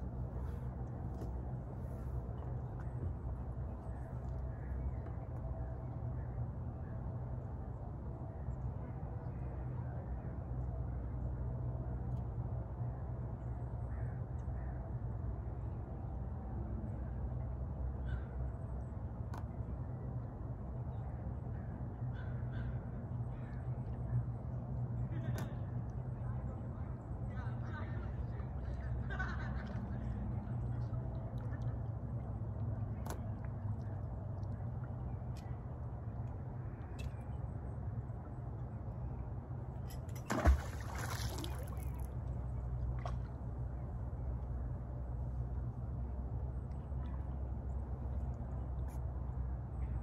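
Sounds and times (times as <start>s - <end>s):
steady low rumble: 0.0s - 50.0s
faint bird calls: 18.0s - 18.5s, 21.6s - 23.6s
magnet splashing into water: 40.1s - 42.1s.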